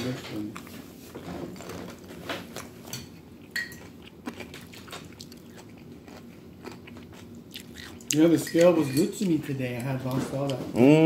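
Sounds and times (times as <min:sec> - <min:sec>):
chewing crunchy taco shell: 0:01.6 - 0:08.4.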